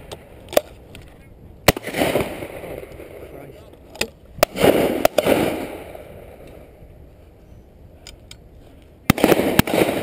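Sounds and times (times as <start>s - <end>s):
shotgun shots with echo: 1.7s - 2.8s, 4.4s - 6.0s, 9.1s - 10.0s.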